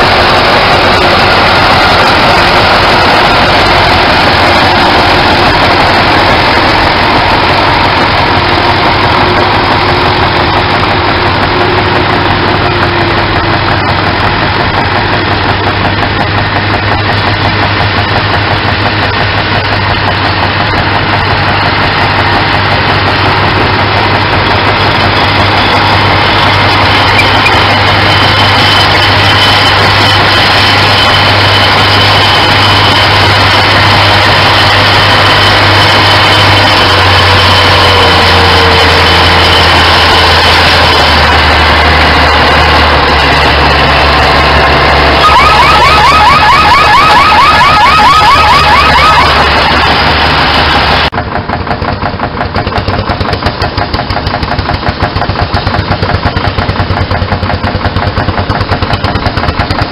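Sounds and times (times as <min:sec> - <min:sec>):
tractor engine running hard: 0:00.0 - 0:59.9
rising alarm-like chirp: 0:43.6 - 0:49.7.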